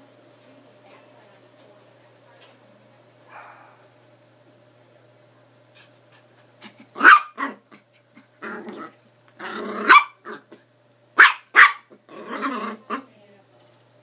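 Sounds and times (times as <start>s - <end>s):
dog growling: 6.6s - 10.6s, 11.9s - 13.1s
small dog yapping: 6.8s - 7.7s, 9.8s - 10.4s, 11.2s - 12.0s.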